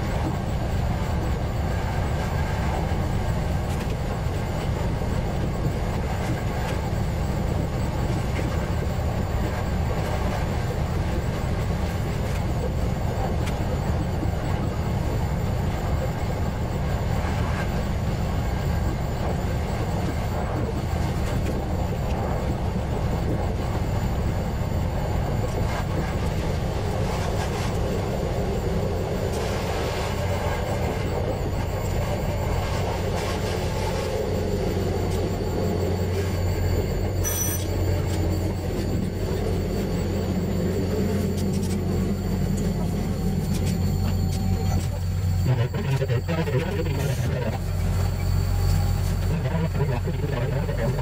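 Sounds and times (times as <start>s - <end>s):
diesel railcar engine drone: 0.0s - 51.0s
rail running noise: 0.0s - 51.0s
high-pitched tone: 34.2s - 47.7s.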